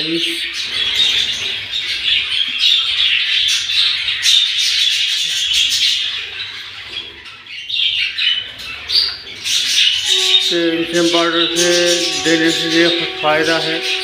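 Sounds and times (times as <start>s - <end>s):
budgerigars chattering and squawking: 0.0s - 14.0s.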